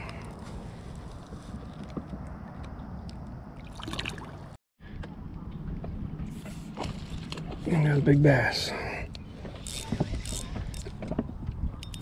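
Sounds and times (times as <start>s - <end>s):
water sloshing and splash: 3.5s - 8.0s.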